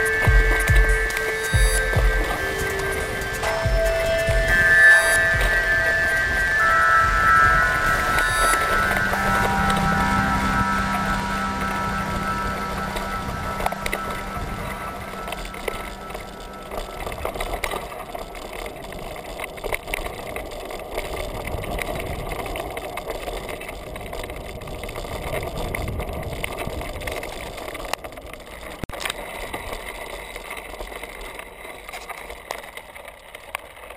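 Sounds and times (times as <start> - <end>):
bike tyres rolling over dirt: 7.6 - 33.9.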